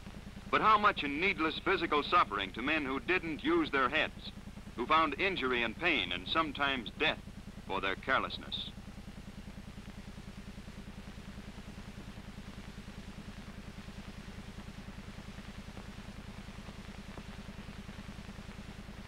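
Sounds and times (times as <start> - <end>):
diesel locomotive engine running: 0.0 - 8.8.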